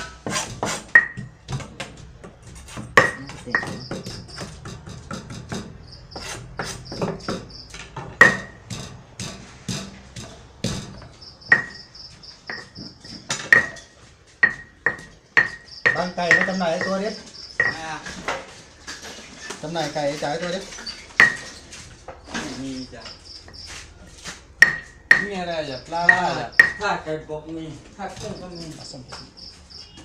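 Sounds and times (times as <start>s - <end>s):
cleaver and pestle knocking: 0.0s - 18.4s, 21.1s - 21.6s, 24.4s - 27.0s, 28.0s - 29.3s
high pulsing insect chirp: 11.2s - 13.2s, 15.4s - 18.0s.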